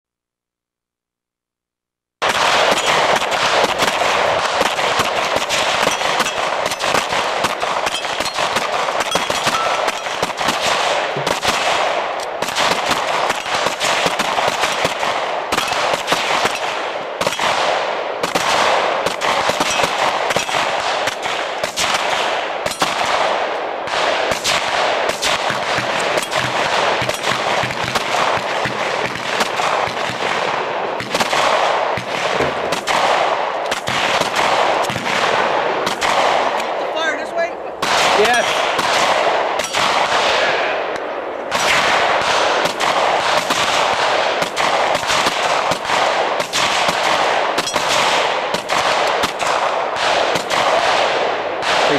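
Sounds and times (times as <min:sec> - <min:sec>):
rapid pistol gunfire: 0:02.2 - 0:36.8, 0:37.8 - 0:51.9.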